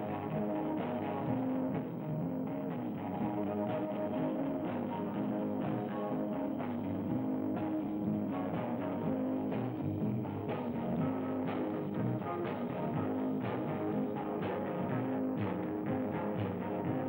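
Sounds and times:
electric guitars droning: 0.0 - 17.0.

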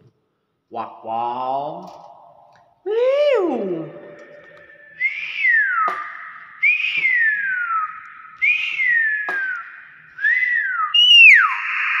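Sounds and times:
myna bird whistling: 4.8 - 12.0.

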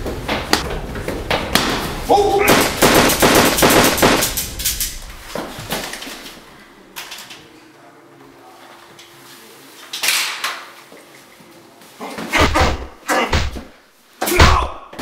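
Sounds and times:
automatic gunfire: 2.5 - 4.4.

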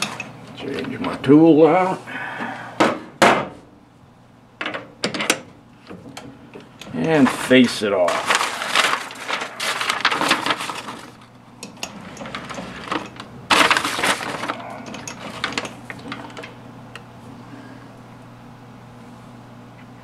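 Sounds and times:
steady low hum: 0.0 - 20.0
metal clicks and clanks: 11.6 - 16.6.

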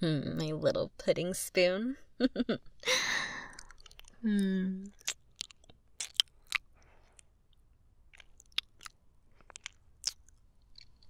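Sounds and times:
wet lip and tongue clicks: 3.5 - 11.0.

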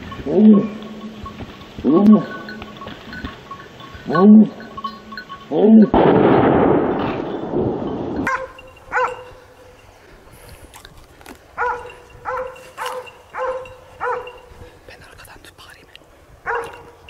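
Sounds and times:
loud rumble: 5.9 - 8.3
dogs barking: 8.2 - 9.7, 11.5 - 14.6, 16.4 - 17.0.

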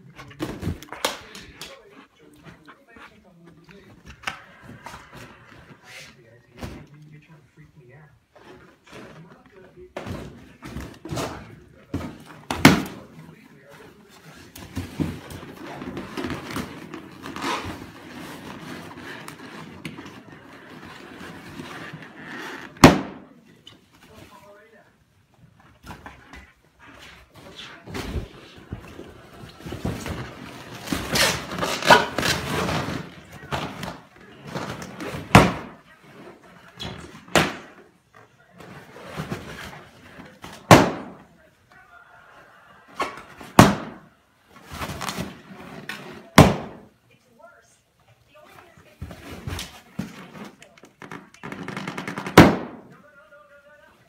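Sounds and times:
balloons rubbing and squeaking: 15.5 - 22.9
balloons bursting: 22.7 - 23.4, 40.6 - 41.3, 43.4 - 44.1, 44.9 - 46.9, 51.4 - 53.0
balloon popping: 51.1 - 52.9.

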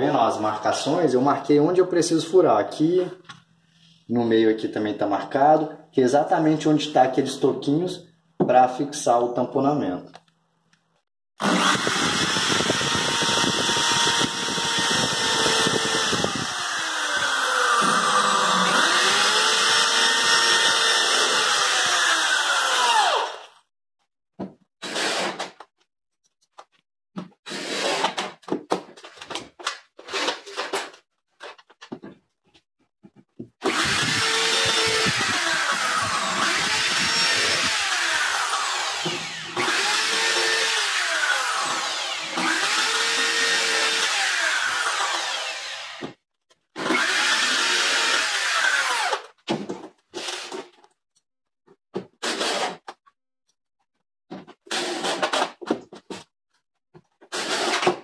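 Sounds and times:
electric drill boring into wood: 11.4 - 23.6, 33.6 - 46.2, 46.8 - 49.4, 57.3 - 57.9.

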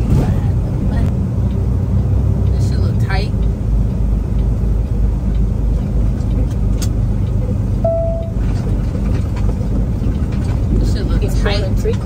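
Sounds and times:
short single-tone beep: 7.8 - 8.4.

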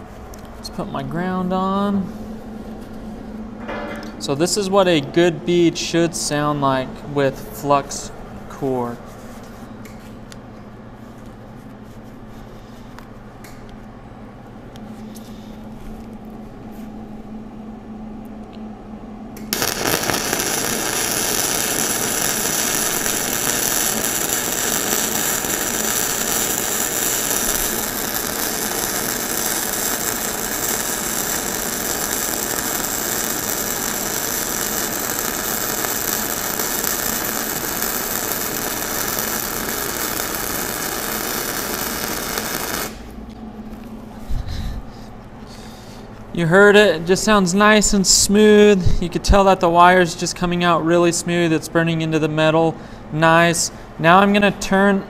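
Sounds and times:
arc welding: 19.4 - 43.3.

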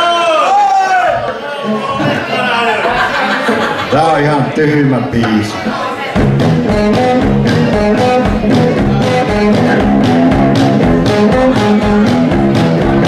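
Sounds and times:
drums steady beat: 6.2 - 13.0
live rock band playing: 6.2 - 13.0.

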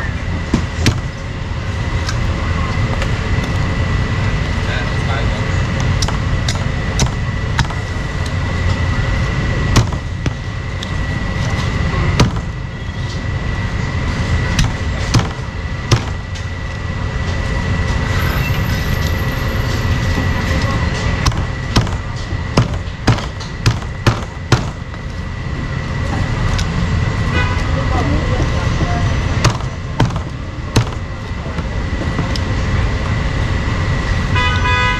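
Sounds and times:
market and traffic rumble: 0.0 - 34.9
cleaver chopping on wooden block: 6.0 - 7.8, 9.8 - 10.4, 14.6 - 16.2, 21.2 - 24.8.

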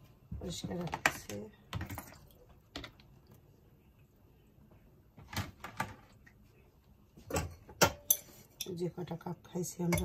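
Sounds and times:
crockery clattering in a steel sink: 7.3 - 8.8.

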